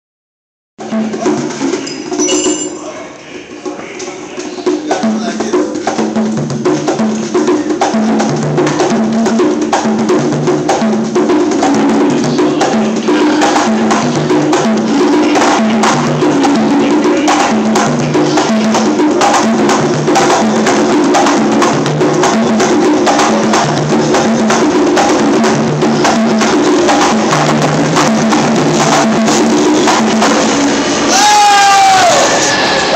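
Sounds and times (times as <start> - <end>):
conga drums played by hand: 0.8 - 31.2.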